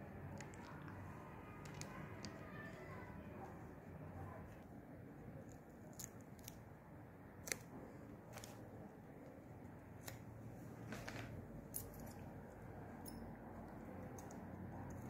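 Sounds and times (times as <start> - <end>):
sharp clicks and snips: 5.4 - 6.7, 7.4 - 8.6, 10.0 - 10.3, 13.1 - 15.0.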